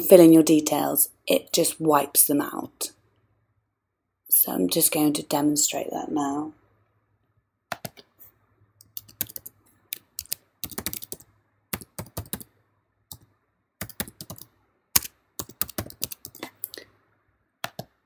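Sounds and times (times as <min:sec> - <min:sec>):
computer keyboard typing: 0:07.7 - 0:08.1, 0:08.8 - 0:12.5, 0:13.1 - 0:16.8, 0:17.6 - 0:18.0.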